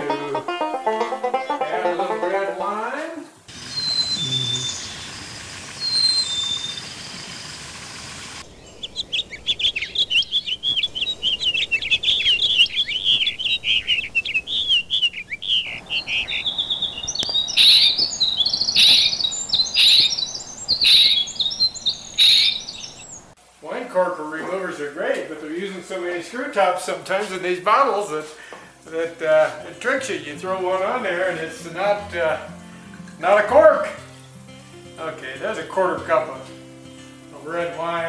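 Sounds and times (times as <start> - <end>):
bird chirps and warbling: 3.5 - 7.4, 8.5 - 23.3
loud bird calls: 3.5 - 7.6, 8.4 - 23.4.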